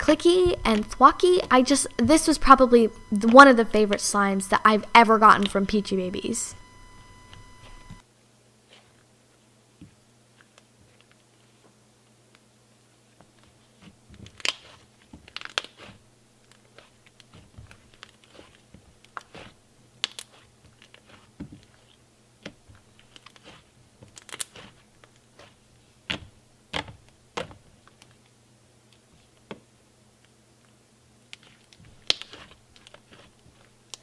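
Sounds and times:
slime squished by hand: 0:31.4 - 0:34.0.

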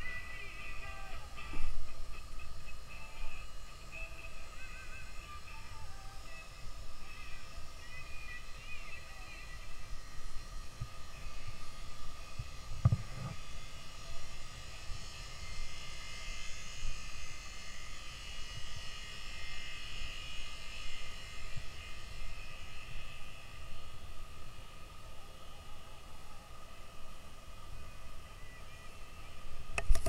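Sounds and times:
boat machinery drone: 0:00.0 - 0:30.0
wind on microphone: 0:09.6 - 0:13.5.

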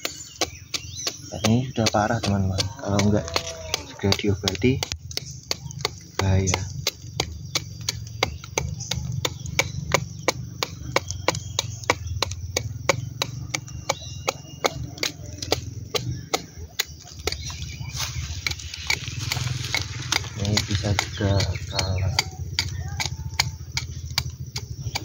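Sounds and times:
scratchy scraping: 0:00.0 - 0:05.0, 0:16.2 - 0:23.6
knife chopping bark: 0:00.0 - 0:25.0.

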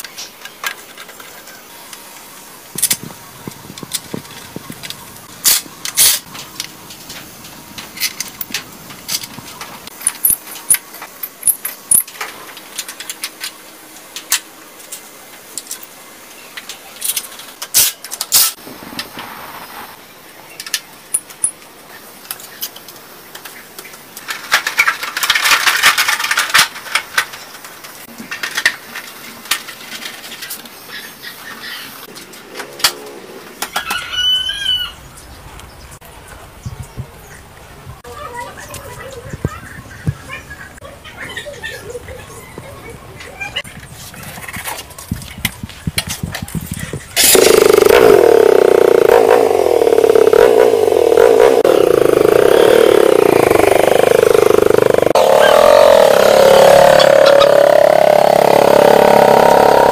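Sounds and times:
rustling and scraping: 0:16.6 - 0:20.0, 0:43.6 - 0:47.9.

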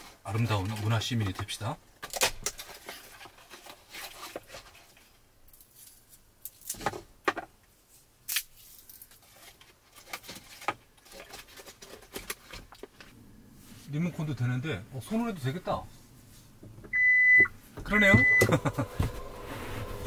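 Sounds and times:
soft rustling: 0:07.8 - 0:14.4, 0:15.1 - 0:16.9.

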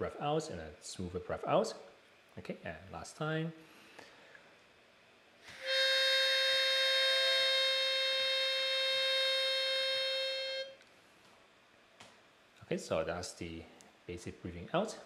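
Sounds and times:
harmonica single held note: 0:05.4 - 0:10.8
higher harmonica note: 0:05.5 - 0:10.8.

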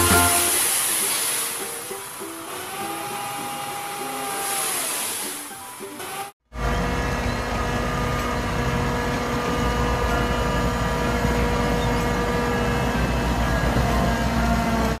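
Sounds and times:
truck diesel engine running: 0:06.5 - 0:15.0.

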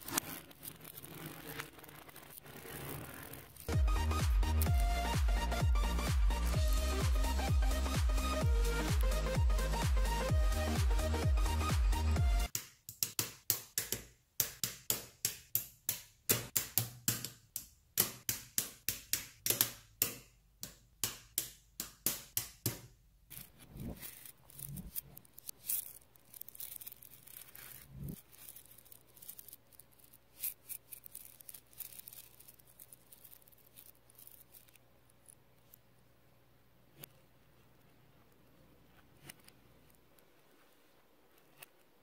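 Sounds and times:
magnet balls clicking together: 0:24.2 - 0:35.8.

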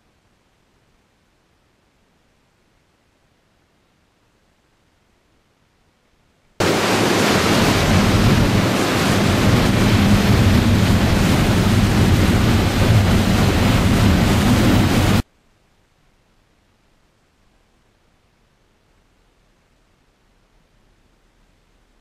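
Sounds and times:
low engine drone: 0:06.6 - 0:15.2
wind waves and spray rushing: 0:06.6 - 0:15.2.

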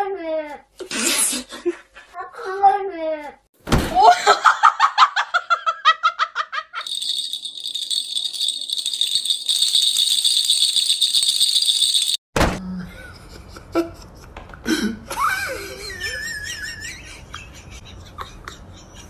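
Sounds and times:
person laughing: 0:04.0 - 0:06.8, 0:12.8 - 0:19.0
small bell jingling: 0:06.8 - 0:12.3.

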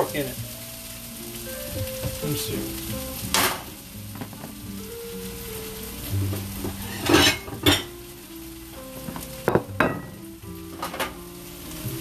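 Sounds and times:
food sizzling in frying pan: 0:00.0 - 0:12.0
dishware clattering: 0:06.9 - 0:07.9, 0:09.5 - 0:10.2.

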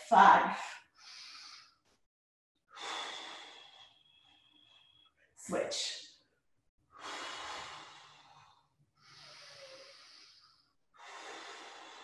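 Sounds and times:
woman breathing hard: 0:02.7 - 0:05.1, 0:06.9 - 0:12.0.

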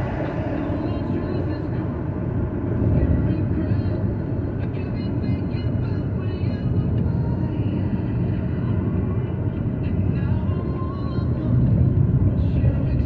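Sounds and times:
car tyres and engine rumble: 0:00.0 - 0:13.0.

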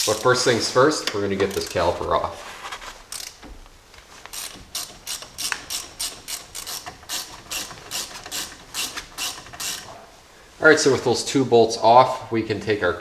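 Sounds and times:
socket ratchet clicking: 0:01.5 - 0:01.9, 0:03.1 - 0:03.5, 0:04.3 - 0:09.9.

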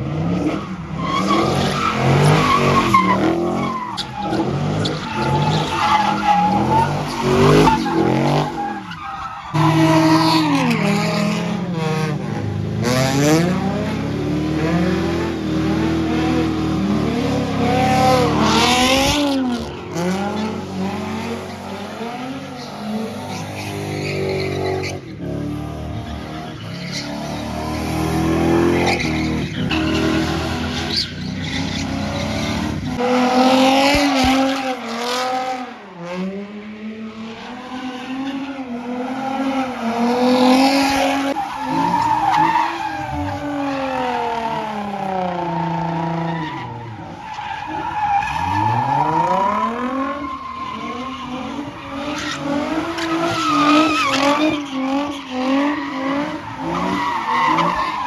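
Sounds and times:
tyres screeching: 0:28.8 - 0:33.2.

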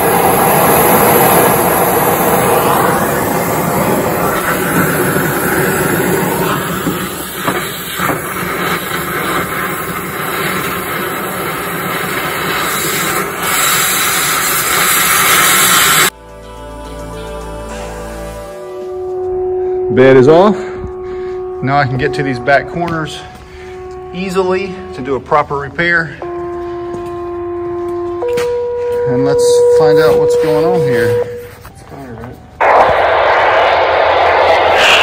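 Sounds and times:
cutting torch hissing: 0:00.0 - 0:16.1.

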